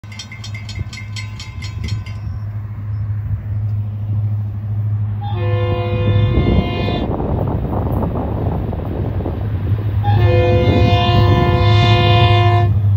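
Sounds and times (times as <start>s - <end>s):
railroad crossing bell ringing: 0.0s - 3.6s
locomotive air horn: 5.1s - 7.2s, 10.0s - 12.9s.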